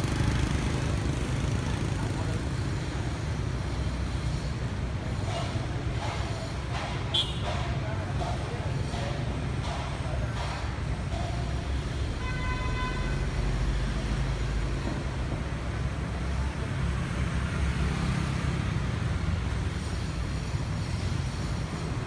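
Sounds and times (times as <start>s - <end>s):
street traffic: 0.0s - 22.0s
vehicle horn honking: 7.1s - 7.4s, 12.2s - 13.3s.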